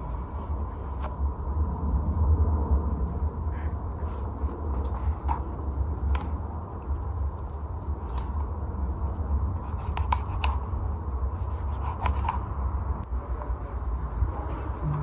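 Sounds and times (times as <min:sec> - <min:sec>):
low rumble: 0:00.0 - 0:09.7.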